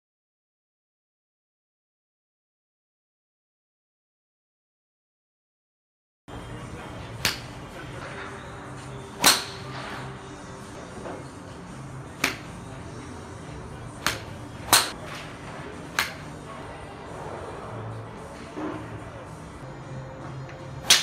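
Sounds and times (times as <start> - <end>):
golf club striking ball: 9.2 - 9.7, 12.2 - 12.5, 14.0 - 15.0.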